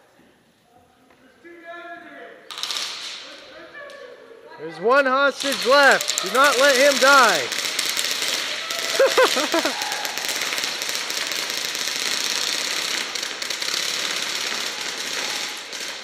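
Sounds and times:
airsoft guns rapid fire: 2.5s - 3.2s, 5.4s - 16.0s.

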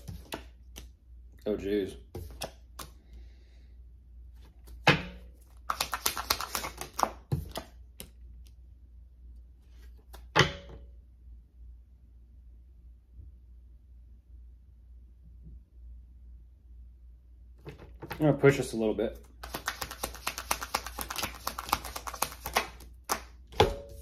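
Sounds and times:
cards snapping: 0.1s - 0.9s, 5.5s - 8.2s, 19.4s - 23.4s
sharp card slaps: 4.7s - 8.1s, 19.4s - 24.0s
cards riffling: 5.5s - 8.2s, 19.2s - 23.4s.

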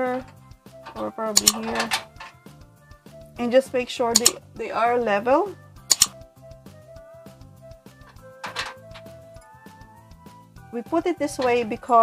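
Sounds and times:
background music with steady beat: 0.0s - 12.0s
sharp click: 1.4s - 2.0s, 4.2s - 4.4s, 5.9s - 6.2s.

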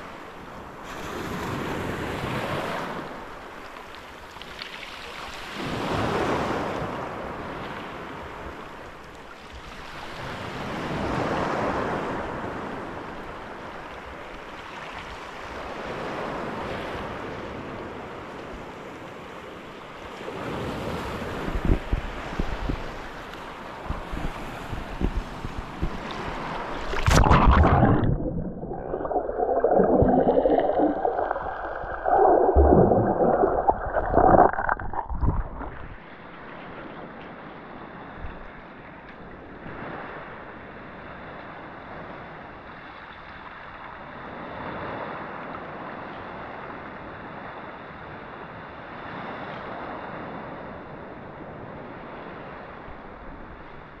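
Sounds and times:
small waves lapping: 24.3s - 36.6s
muffled underwater sloshing: 25.0s - 36.7s.

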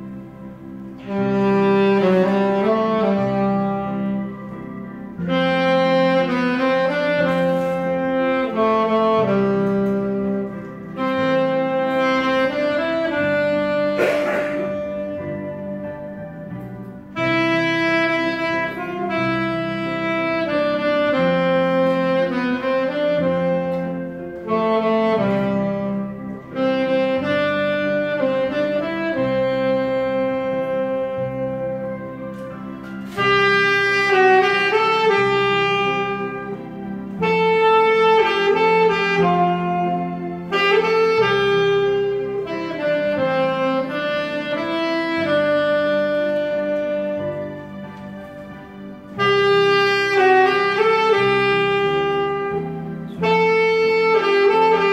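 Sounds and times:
saxophone slow melody: 0.0s - 54.9s
sustained chordal accompaniment: 0.0s - 54.9s.

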